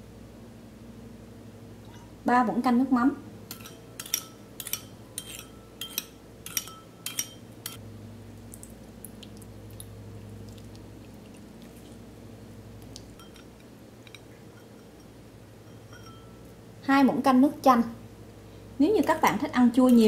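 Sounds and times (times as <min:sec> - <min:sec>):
spoon clinking against bowl: 0:03.5 - 0:07.8, 0:13.2 - 0:16.5.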